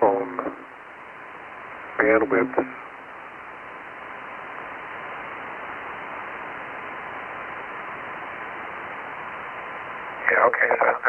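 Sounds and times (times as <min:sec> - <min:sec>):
faint steady tone: 0:00.0 - 0:11.0
radio receiver hiss: 0:00.0 - 0:11.0.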